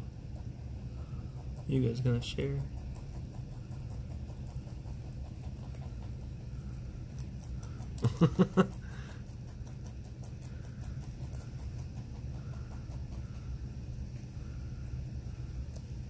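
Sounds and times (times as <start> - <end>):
rabbits chewing: 0.0 - 16.0
steady low hum: 0.0 - 16.0
person chuckling: 7.8 - 9.2.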